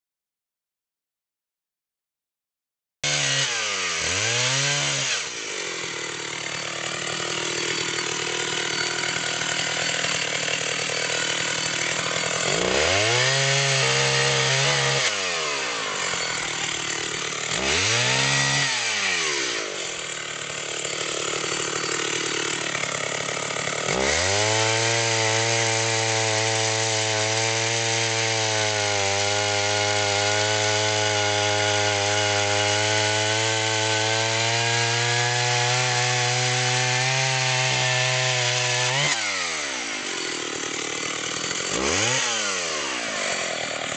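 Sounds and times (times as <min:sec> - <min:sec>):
chainsaw cutting log: 0:03.0 - 0:43.9.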